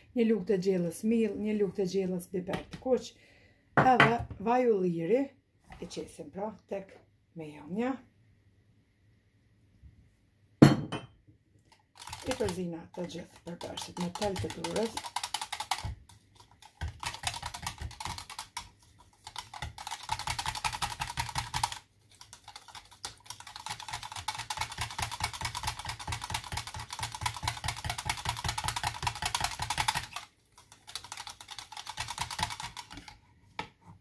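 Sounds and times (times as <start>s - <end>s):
whisk clicking against plastic jug: 11.7s - 33.2s.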